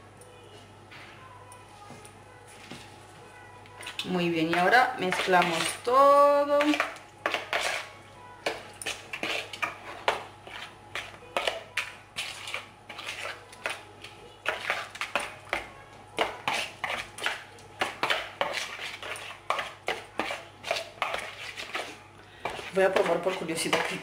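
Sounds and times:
metal utensil scraping a bowl: 0:03.8 - 0:05.9, 0:06.6 - 0:15.6, 0:16.2 - 0:24.0.

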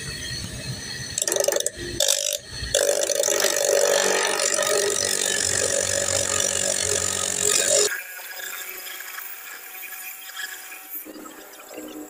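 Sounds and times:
cut-off wheel grinding hose: 0:01.2 - 0:07.9.

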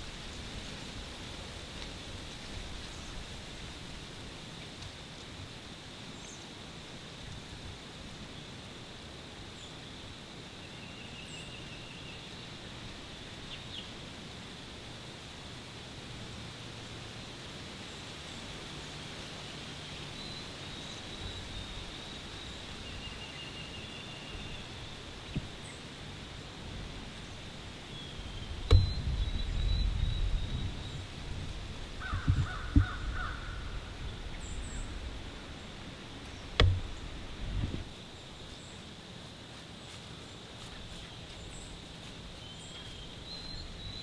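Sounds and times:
sharp knock with thump: 0:28.7 - 0:29.0, 0:36.6 - 0:37.0
low rustling and thumping: 0:36.5 - 0:37.9.

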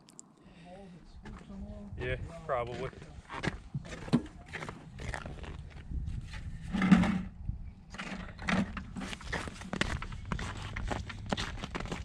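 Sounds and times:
bucket bump: 0:06.7 - 0:09.1
boots crunching on snow: 0:09.2 - 0:12.0.

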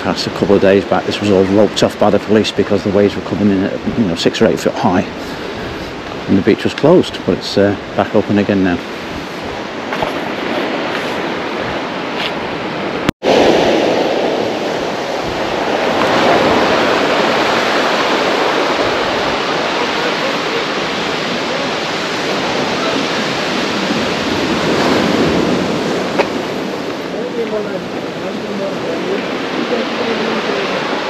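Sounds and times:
sea surf breaking: 0:00.0 - 0:31.0.

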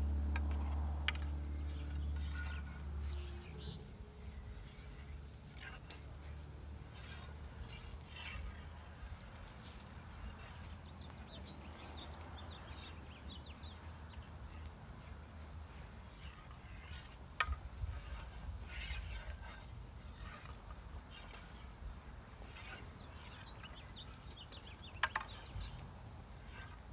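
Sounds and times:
wooden swords clacking: 0:16.4 - 0:19.4, 0:25.0 - 0:25.8.

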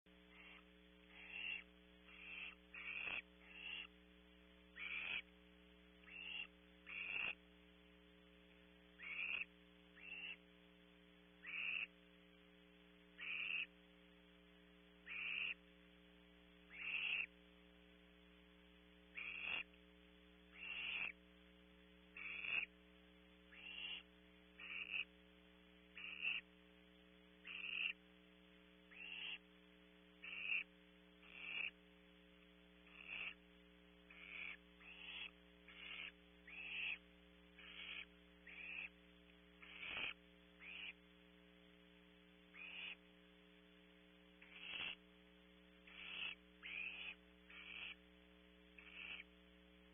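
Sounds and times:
electrical hum: 0:00.1 - 0:49.9
owlet raspy hissing calls: 0:00.3 - 0:03.9, 0:04.7 - 0:05.3, 0:06.0 - 0:07.4, 0:09.0 - 0:10.5, 0:11.4 - 0:11.9, 0:13.2 - 0:13.8, 0:15.0 - 0:15.6, 0:16.7 - 0:17.3, 0:19.1 - 0:19.7, 0:20.5 - 0:21.2, 0:22.1 - 0:22.7, 0:23.5 - 0:25.1, 0:26.0 - 0:26.5, 0:27.4 - 0:28.0, 0:28.9 - 0:29.5, 0:30.2 - 0:31.8, 0:32.8 - 0:33.4, 0:34.1 - 0:37.0, 0:37.6 - 0:39.0, 0:39.6 - 0:41.0, 0:42.5 - 0:43.0, 0:44.4 - 0:45.0, 0:45.8 - 0:48.0, 0:48.8 - 0:49.3.

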